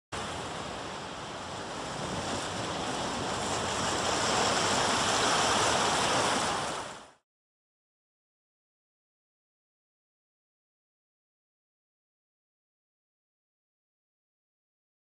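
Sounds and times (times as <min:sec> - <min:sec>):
steady rushing noise: 0:00.2 - 0:07.2.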